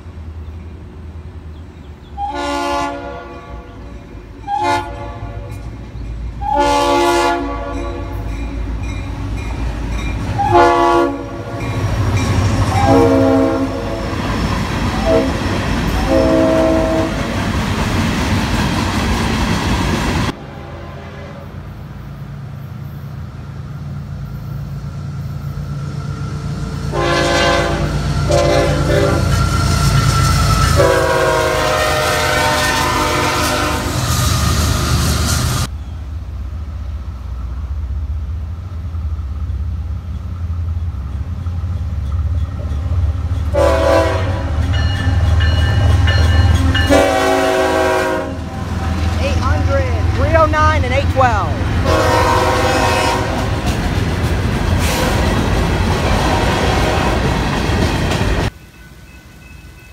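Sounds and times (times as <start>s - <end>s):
locomotive horn blasts: 2.2s - 5.6s, 6.4s - 8.3s, 10.4s - 11.8s, 12.7s - 14.2s, 15.0s - 17.3s, 20.4s - 21.7s, 26.9s - 29.4s, 30.7s - 34.0s, 43.5s - 44.9s, 46.8s - 50.9s, 51.8s - 53.6s
freight cars rumbling past: 7.3s - 58.7s.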